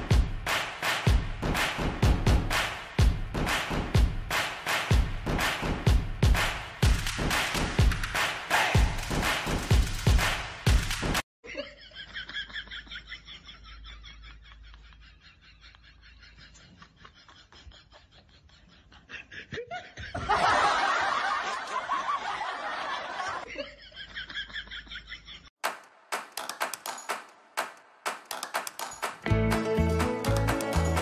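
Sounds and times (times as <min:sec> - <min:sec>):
person laughing: 0:11.4 - 0:20.7.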